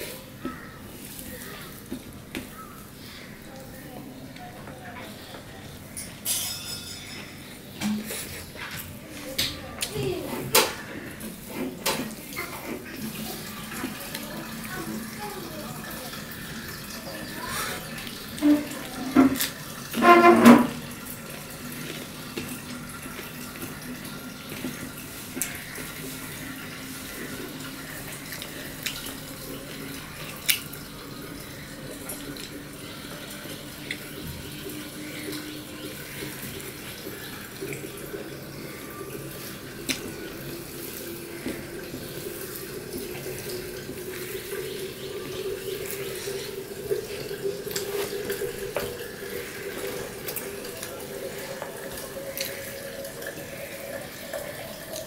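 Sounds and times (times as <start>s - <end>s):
man chewing wet mouth sounds: 28.1s - 30.8s, 45.8s - 53.5s.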